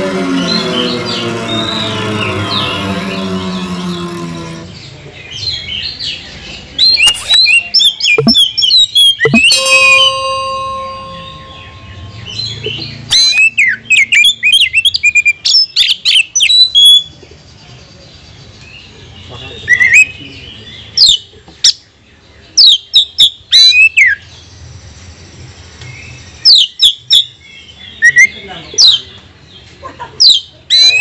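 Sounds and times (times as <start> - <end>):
bird singing: 0.0 - 24.6.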